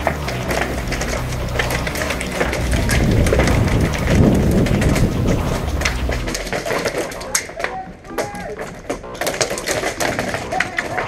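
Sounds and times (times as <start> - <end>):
rumbling wind: 0.0 - 8.1
sharp clicks and taps: 0.0 - 11.0.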